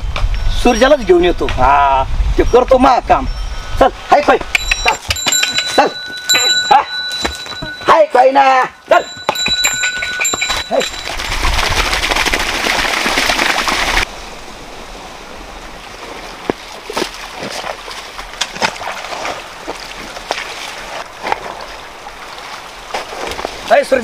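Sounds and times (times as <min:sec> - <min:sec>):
water rushing: 0:09.0 - 0:24.0
hoe splashing and scraping mud: 0:09.6 - 0:14.1, 0:16.1 - 0:23.7.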